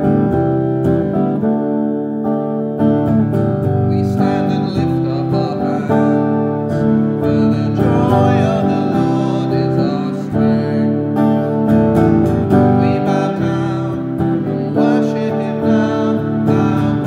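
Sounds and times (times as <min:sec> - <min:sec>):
electric guitar strumming chords: 0:00.0 - 0:17.0
man singing: 0:03.8 - 0:17.0.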